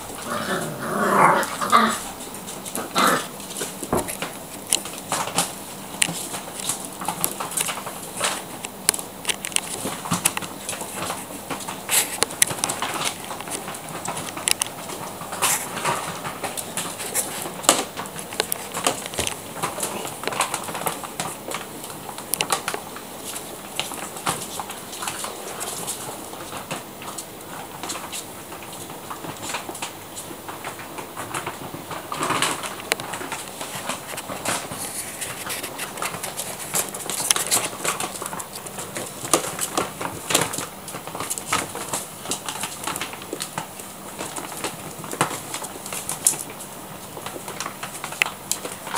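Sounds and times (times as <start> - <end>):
puppy claws on tiled floor: 0.0 - 48.9.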